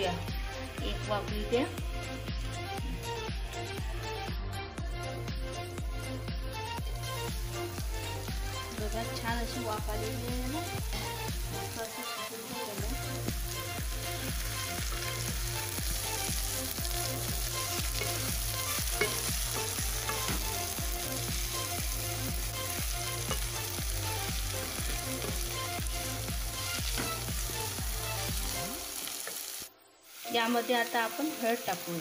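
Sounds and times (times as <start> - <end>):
vegetables sizzling in oil: 6.6 - 32.0.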